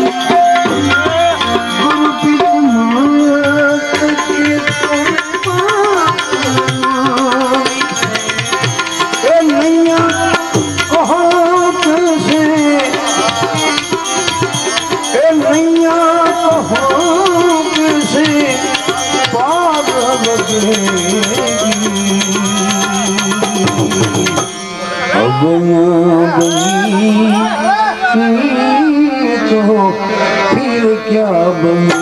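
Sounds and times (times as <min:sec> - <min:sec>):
fast ticking percussion: 0:00.0 - 0:25.5
pitched melody line: 0:00.0 - 0:32.0
tabla: 0:00.0 - 0:32.0.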